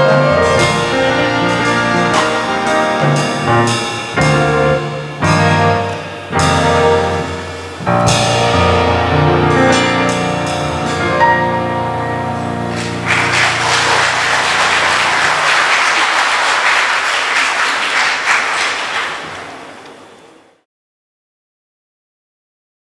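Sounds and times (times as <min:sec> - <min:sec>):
choir and band final chord: 0:12.2 - 0:19.8
audience applause: 0:12.7 - 0:20.4.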